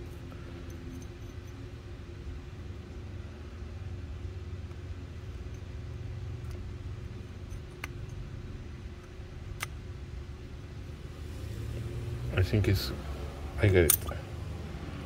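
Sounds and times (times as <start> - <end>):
steady low hum: 0.0 - 15.0
pliers metallic clicks: 13.7 - 14.2.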